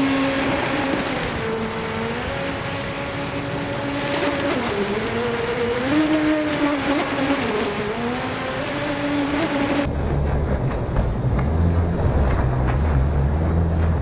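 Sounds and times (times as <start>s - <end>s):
electric motor whine: 0.0s - 9.9s.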